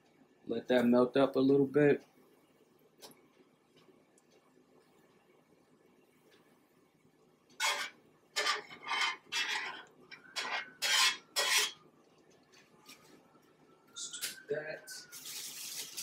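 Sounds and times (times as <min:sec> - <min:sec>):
knife scraping butter on griddle: 0:07.6 - 0:11.8.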